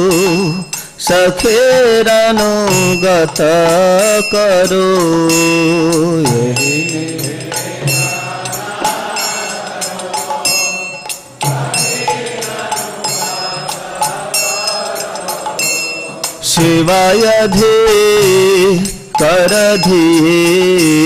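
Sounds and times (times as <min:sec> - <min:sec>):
drum beat: 0:00.0 - 0:21.0
hand cymbals striking: 0:00.0 - 0:21.0
lead singer singing: 0:00.0 - 0:21.0
congregation singing a hymn: 0:06.5 - 0:19.9.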